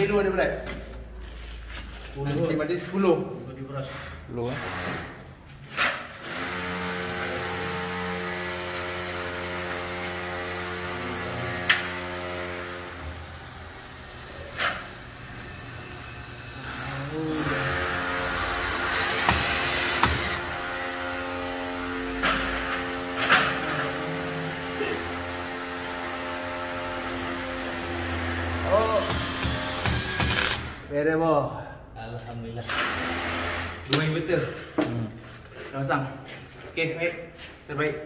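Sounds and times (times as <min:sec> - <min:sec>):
electric drill whirring: 0:06.2 - 0:22.2, 0:25.0 - 0:30.8
sharp knocks: 0:19.2 - 0:20.4.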